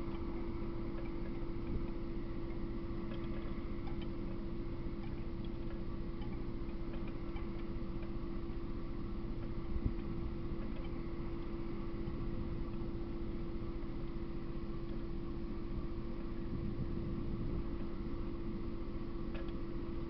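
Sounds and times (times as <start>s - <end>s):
faint ticks: 0.0s - 8.2s, 19.3s - 19.7s
electronic hum and hiss: 0.0s - 20.0s.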